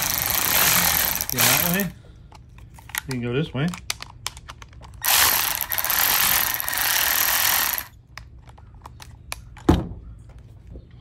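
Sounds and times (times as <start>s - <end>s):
power ratchet whirring: 0.0s - 1.9s, 5.0s - 8.0s.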